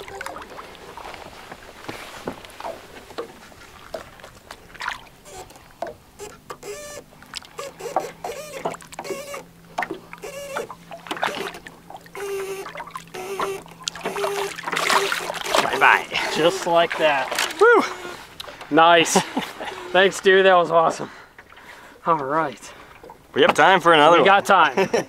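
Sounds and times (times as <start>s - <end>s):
water sloshing and splashing: 0.0s - 24.7s
faint steady hum: 0.0s - 25.0s
short squeaky chirps: 6.2s - 7.0s, 7.6s - 9.5s, 10.2s - 15.8s
water dripping: 9.8s - 15.7s.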